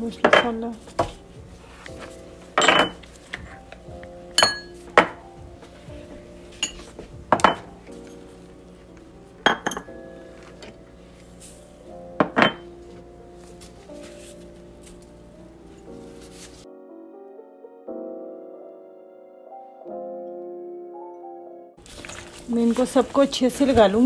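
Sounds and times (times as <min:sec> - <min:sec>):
soft background music: 0:00.0 - 0:24.0
spoon clinking against steel pot: 0:04.4 - 0:05.1, 0:06.6 - 0:06.8, 0:09.4 - 0:10.0.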